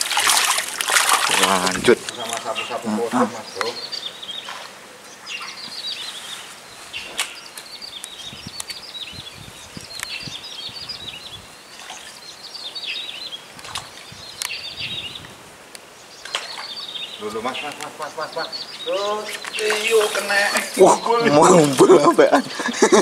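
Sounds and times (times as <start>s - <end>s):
bird twittering: 1.4s - 15.3s, 15.9s - 21.6s.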